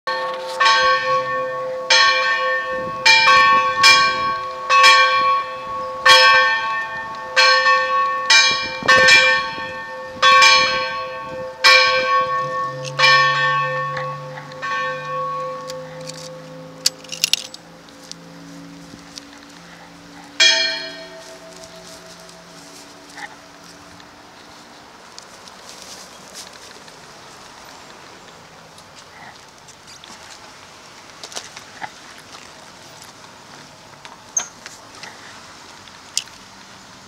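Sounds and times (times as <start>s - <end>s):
church bell ringing: 0.1s - 18.8s, 19.9s - 24.0s.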